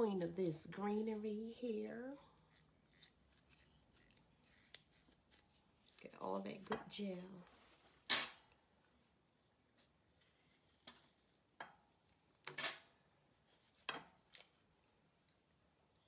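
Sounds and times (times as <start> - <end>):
knife cutting leaf: 2.4 - 6.0.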